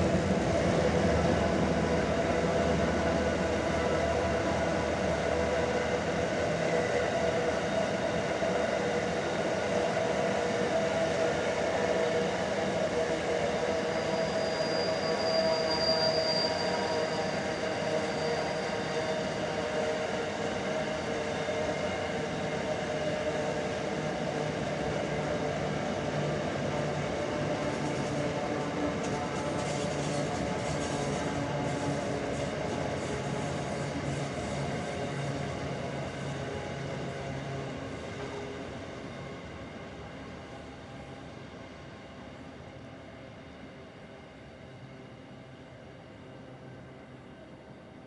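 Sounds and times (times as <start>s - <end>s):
freight train rumbling past: 0.0s - 15.6s, 16.6s - 42.3s
high wheel squeal: 13.6s - 19.6s.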